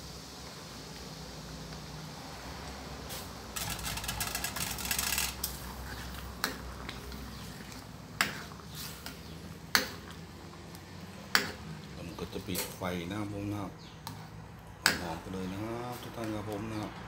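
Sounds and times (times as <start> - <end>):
ladle stirring liquid in a pan: 3.6 - 11.7.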